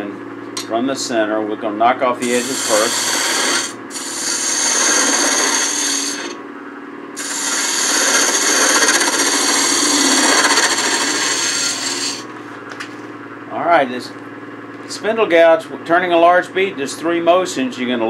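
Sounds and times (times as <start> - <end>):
gouge cutting wood on a lathe: 2.2 - 6.4, 7.2 - 12.3.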